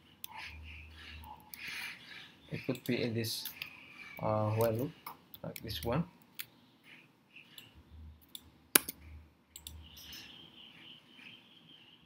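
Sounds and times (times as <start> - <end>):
keyboard and mouse clicks: 4.5 - 10.3.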